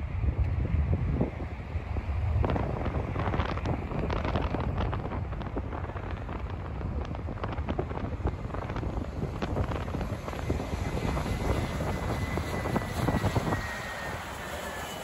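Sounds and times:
jet engines rumbling: 0.0 - 15.0
wind buffeting the microphone: 0.0 - 15.0
thin engine whine: 8.9 - 15.0.

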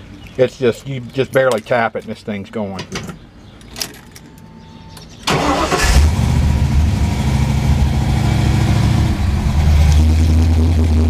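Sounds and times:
car engine starting and idling: 5.2 - 11.0.

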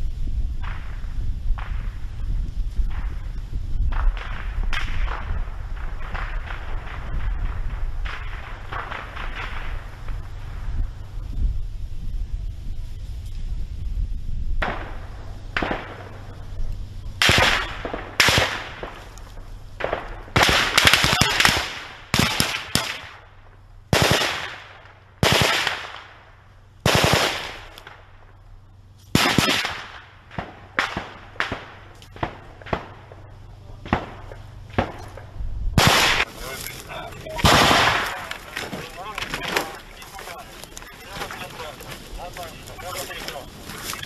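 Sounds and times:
automatic gunfire bursts: 17.2 - 19.0, 19.8 - 23.1, 23.9 - 24.6, 25.2 - 26.0, 26.8 - 27.7, 29.1 - 30.1, 35.8 - 36.3, 37.4 - 38.2
gunshots with echo: 17.2 - 19.0, 19.8 - 23.2, 23.9 - 26.1, 26.9 - 27.7, 29.2 - 33.0, 35.8 - 36.3, 37.3 - 38.4.

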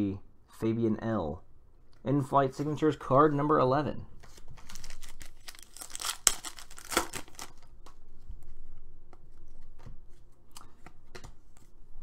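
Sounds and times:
foil pack ripping: 4.6 - 7.6.

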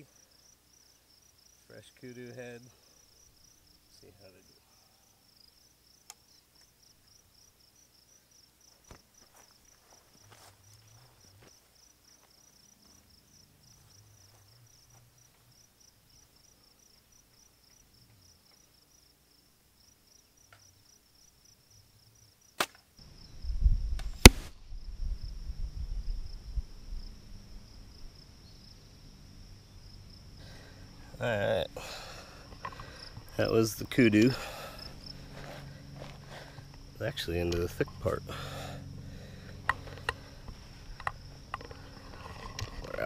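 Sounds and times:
arrow hitting bone crack: 22.6 - 22.8, 24.0 - 24.5
bow shot snap: 22.6 - 22.8, 24.0 - 24.6
wind rumble on microphone: 23.2 - 28.2
high insect chirring: 24.8 - 43.0.

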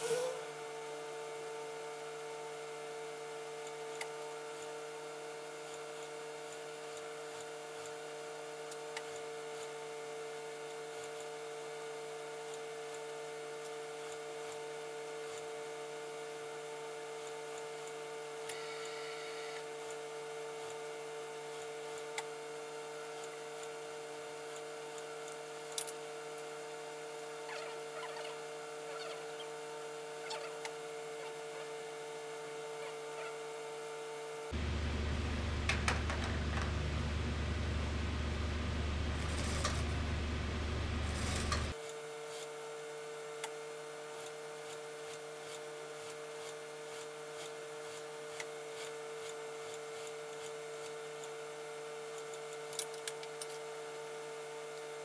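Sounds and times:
sewing machine motor humming: 34.6 - 41.8.

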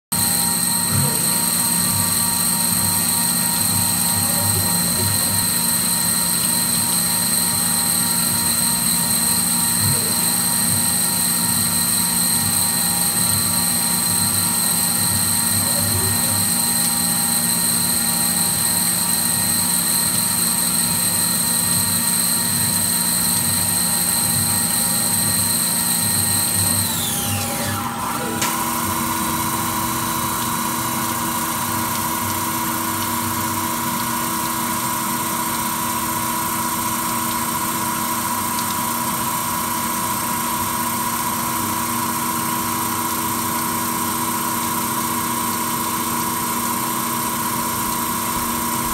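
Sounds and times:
high-pitched spindle whine: 0.2 - 34.0
coolant flowing: 0.2 - 48.9.

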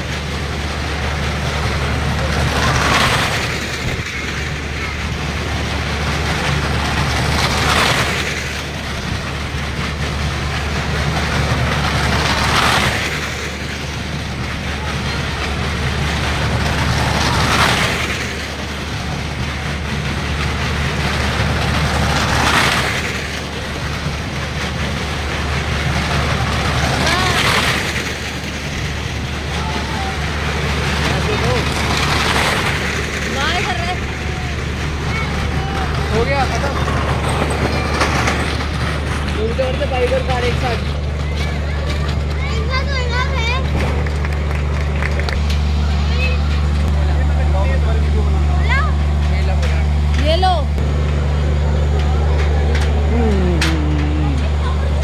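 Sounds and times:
fairground ride noise: 0.0 - 55.0
low engine hum: 0.0 - 55.0
crowd voices: 13.0 - 21.2, 23.2 - 55.0.

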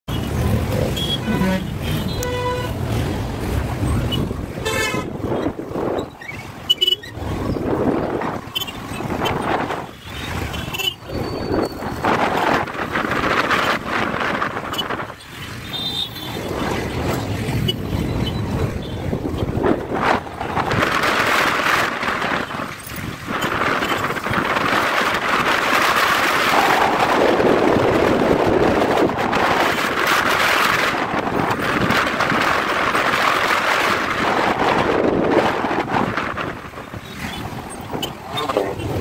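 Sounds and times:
wind rushing over microphone: 1.7 - 15.6, 16.3 - 39.0.

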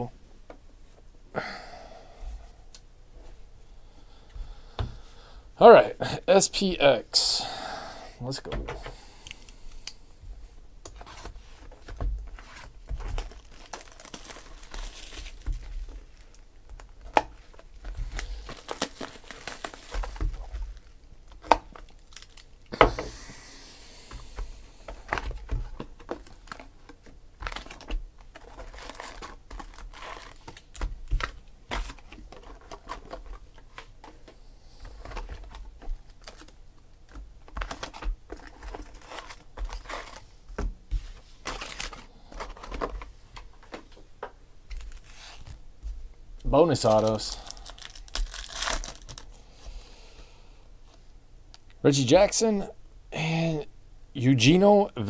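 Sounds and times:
shrink-wrap crinkling and tearing: 11.9 - 22.7, 24.9 - 33.8, 35.0 - 40.3, 41.4 - 42.9, 44.7 - 45.6, 46.6 - 49.4.

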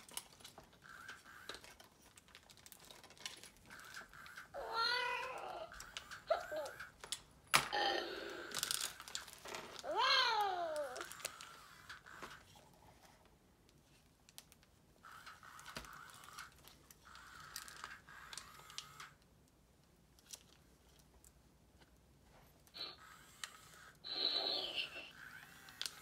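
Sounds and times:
plastic parts scraping: 0.0 - 7.3.

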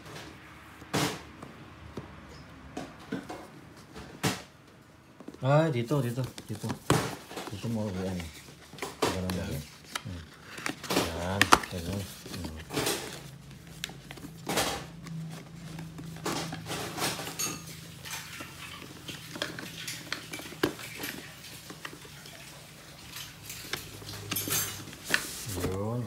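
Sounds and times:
cardboard boxes being handled: 5.2 - 17.3, 23.4 - 26.0
plastic packaging rustling: 5.2 - 26.0.

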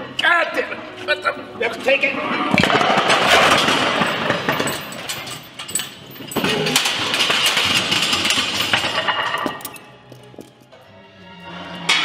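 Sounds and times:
steel barbells clanging and crashing: 2.6 - 9.9.

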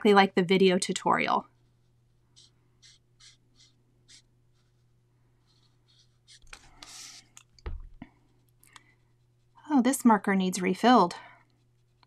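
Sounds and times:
marker scratching on card: 1.5 - 7.4.

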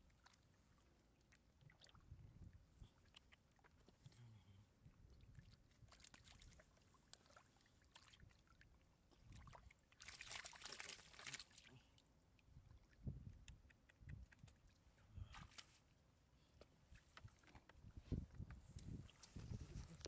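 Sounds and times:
muddy water splashing: 0.0 - 15.8.

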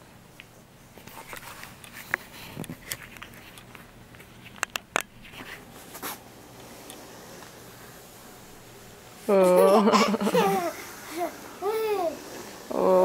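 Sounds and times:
soft rustles: 0.8 - 8.9.

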